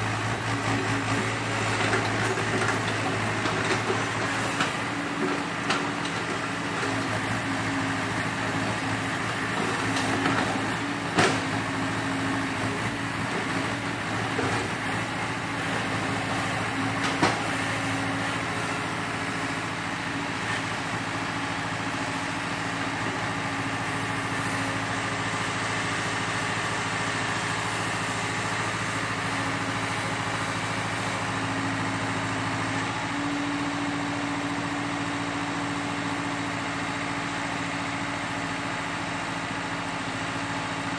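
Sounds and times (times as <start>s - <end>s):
excavator diesel engine running: 0.0s - 40.9s.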